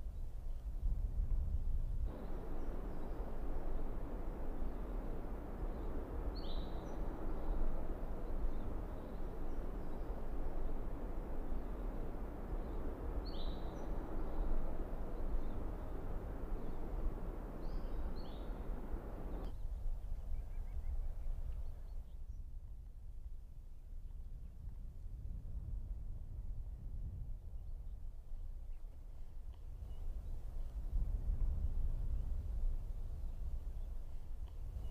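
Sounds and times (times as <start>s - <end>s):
wind-like hiss: 0.0s - 22.9s, 24.8s - 34.9s
low rumble: 2.0s - 19.5s
bird chirping: 2.1s - 19.6s.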